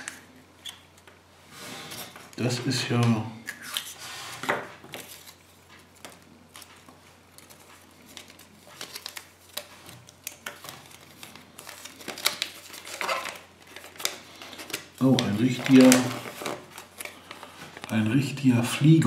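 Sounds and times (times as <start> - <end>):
paper wrapping crinkling: 4.7 - 18.9.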